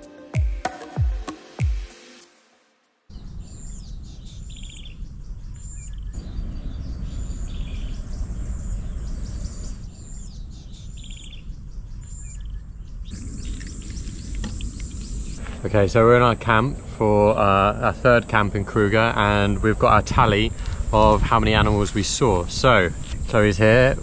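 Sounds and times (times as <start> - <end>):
bird chirp and trill: 3.1 - 15.6
low outdoor rumble: 13.1 - 24.0.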